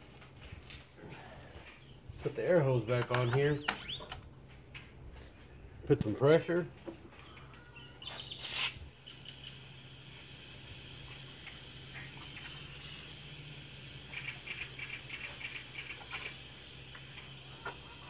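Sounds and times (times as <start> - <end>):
compressed air hissing: 8.0 - 18.0.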